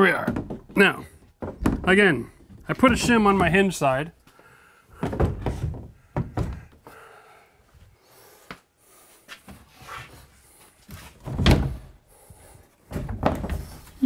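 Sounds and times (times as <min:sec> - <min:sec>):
wooden door thudding against studs: 0:00.2 - 0:03.8, 0:05.0 - 0:06.8, 0:11.2 - 0:11.9, 0:12.9 - 0:13.7
wood scuffing: 0:01.2 - 0:06.8, 0:08.4 - 0:14.0.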